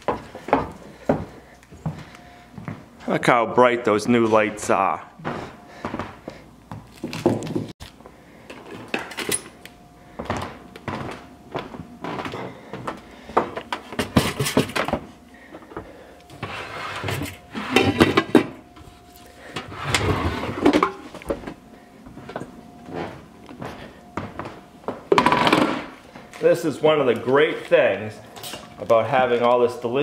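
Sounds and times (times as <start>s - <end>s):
kitchenware clattering: 17.0s - 18.6s, 19.6s - 21.2s.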